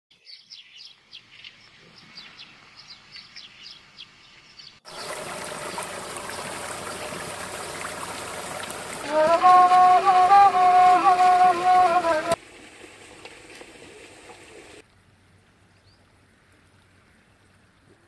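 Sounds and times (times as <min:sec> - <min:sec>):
small birds chirping: 0:00.1 - 0:07.2
water gushing over rocks: 0:04.9 - 0:14.8
flute melody: 0:09.0 - 0:12.4.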